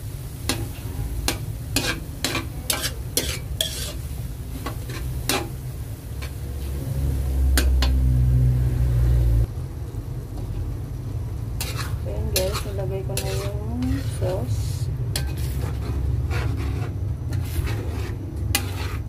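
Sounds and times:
faint sizzle: 0.0s - 19.0s
spatula scraping metal wok: 0.2s - 8.5s, 11.5s - 19.0s
loud low rumble: 6.5s - 11.3s.

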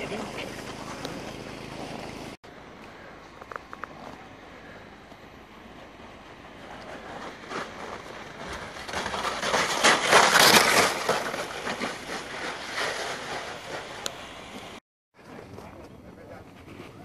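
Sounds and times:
sled runners scraping on ice: 0.0s - 3.1s, 5.6s - 14.8s.

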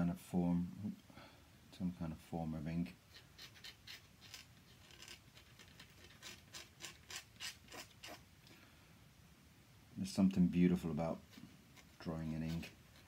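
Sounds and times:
pen nib scratching paper: 3.1s - 8.2s, 11.2s - 13.0s.

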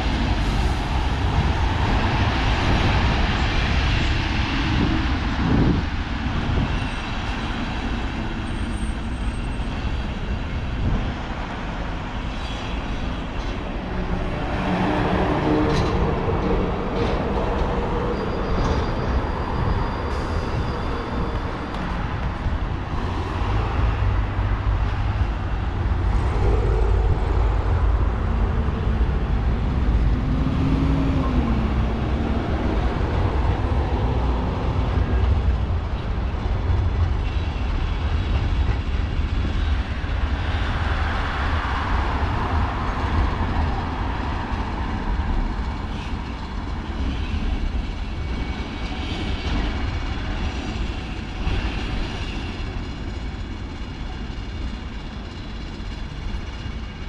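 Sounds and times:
low rumble of passing traffic: 10.2s - 49.0s.

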